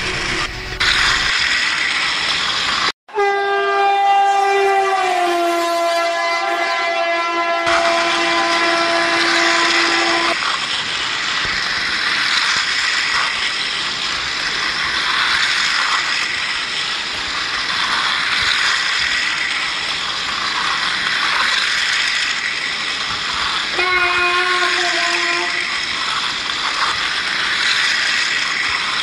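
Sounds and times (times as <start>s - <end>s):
toy train motors rattling whir: 0.8s - 2.9s, 7.7s - 29.0s
toy train electronic horn: 3.1s - 10.4s, 23.7s - 25.8s.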